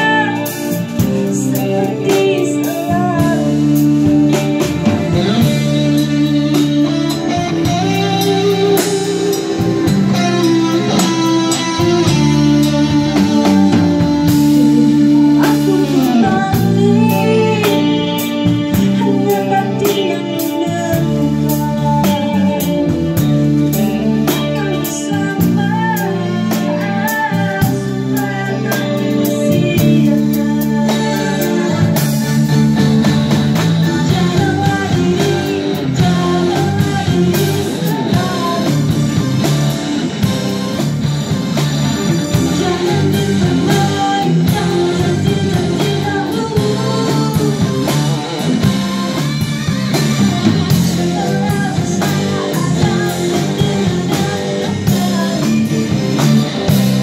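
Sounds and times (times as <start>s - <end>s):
woman singing: 0.0s - 40.4s, 42.0s - 49.4s, 50.0s - 56.9s
drums: 0.0s - 57.0s
electric bass guitar: 0.0s - 57.0s
keyboard: 0.0s - 57.0s.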